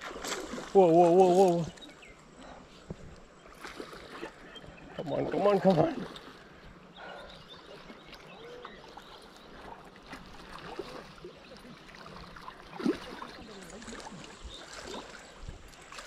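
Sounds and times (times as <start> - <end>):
fish splashing in water: 0.0 - 1.8, 7.8 - 16.0
river flowing: 0.0 - 16.0.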